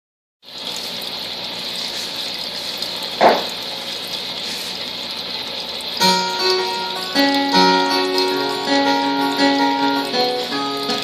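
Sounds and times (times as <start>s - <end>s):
brief knock: 3.2s - 3.6s
acoustic guitar picking notes: 6.0s - 11.0s.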